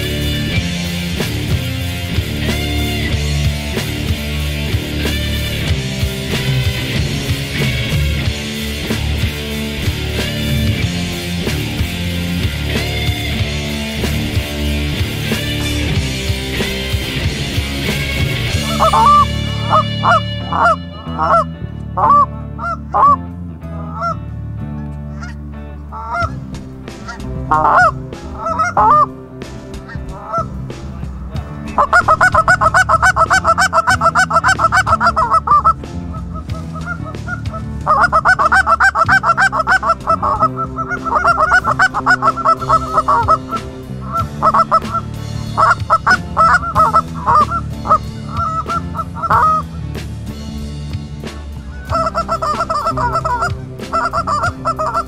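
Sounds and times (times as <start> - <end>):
geese flying in: 18.4 - 23.2, 27.0 - 29.1, 31.8 - 49.7, 51.6 - 55.0
goose call honks and clucks: 18.4 - 24.2, 26.0 - 26.4, 27.0 - 29.1, 29.8 - 30.6, 31.7 - 49.8, 51.6 - 55.0.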